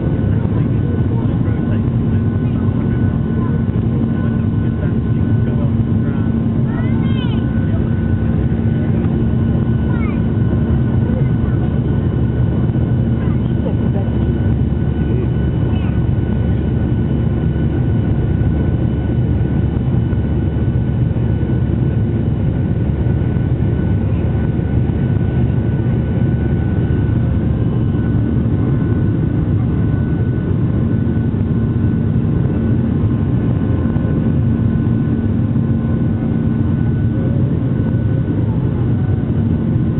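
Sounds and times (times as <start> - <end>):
jet engines roaring in cabin: 0.0 - 39.9.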